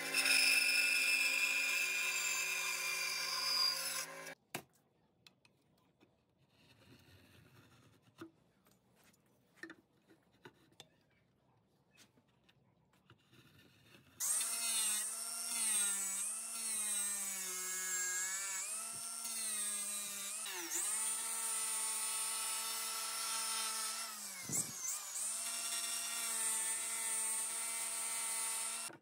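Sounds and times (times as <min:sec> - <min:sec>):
angle grinder sanding wood: 0:14.2 - 0:28.9.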